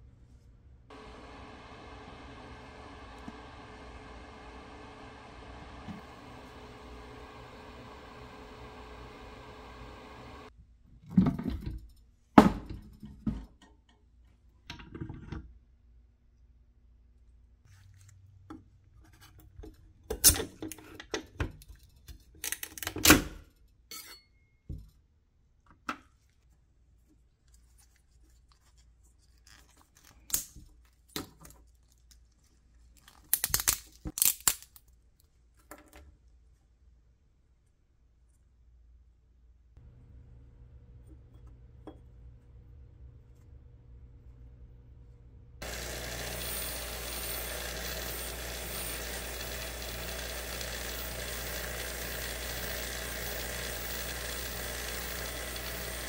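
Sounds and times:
resin parts snapping: 0:33.2 - 0:34.8.

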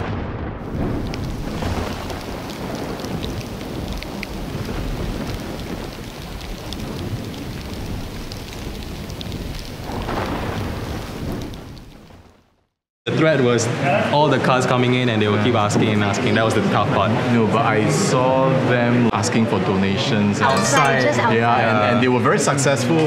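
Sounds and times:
low rumble: 0:00.0 - 0:12.3
steady rain falling: 0:00.6 - 0:12.8, 0:13.6 - 0:19.1
drips and splashes: 0:00.7 - 0:12.2.

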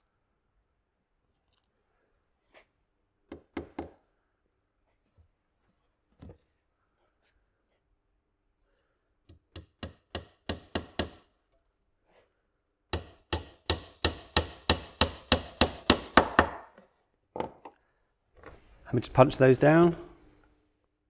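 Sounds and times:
hammer hitting nail into wood: 0:09.4 - 0:11.3, 0:12.9 - 0:16.8.

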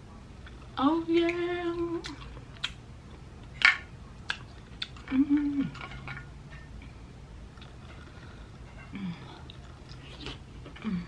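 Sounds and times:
eating clicks and smacks: 0:02.0 - 0:02.8, 0:04.2 - 0:05.1
person humming: 0:05.1 - 0:05.8, 0:10.8 - 0:11.0.

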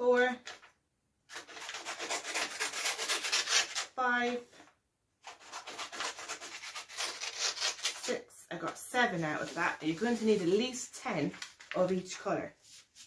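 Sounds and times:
scissors cutting paper: 0:01.3 - 0:03.9, 0:05.2 - 0:08.2.

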